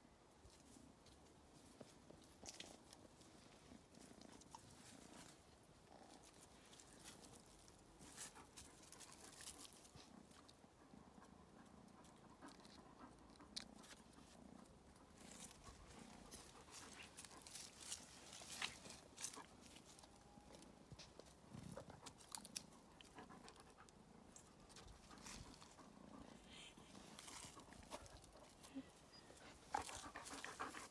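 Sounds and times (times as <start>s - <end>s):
faint scratches and clicks: 11.9s - 25.9s.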